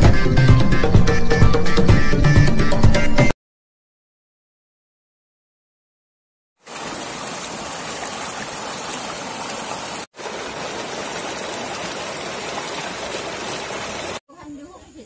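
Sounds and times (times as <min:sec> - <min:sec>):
stream rushing over stones: 0:06.6 - 0:14.2.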